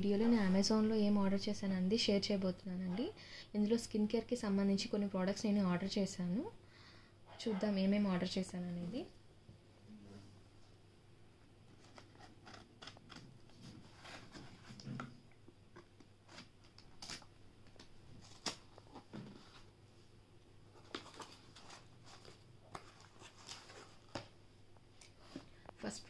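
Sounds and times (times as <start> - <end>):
cardboard rustling and scraping: 11.7 - 15.0, 18.2 - 19.7.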